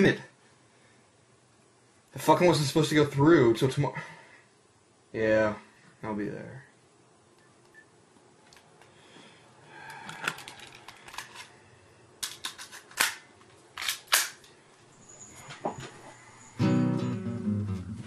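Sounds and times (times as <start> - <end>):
handgun metallic clicks: 13.8 - 14.5.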